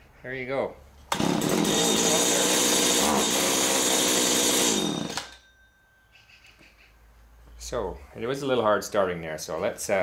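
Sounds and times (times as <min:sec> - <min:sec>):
trimmer engine running and stopping: 0:01.1 - 0:05.4.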